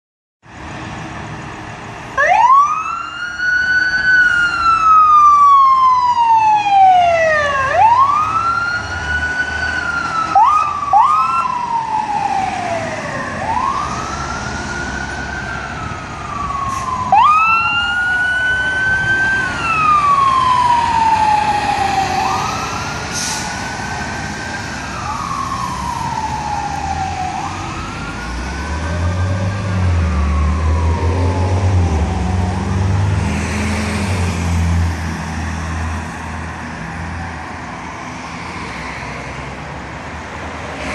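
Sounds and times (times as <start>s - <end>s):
fire engine siren wailing: 1.5s - 39.1s.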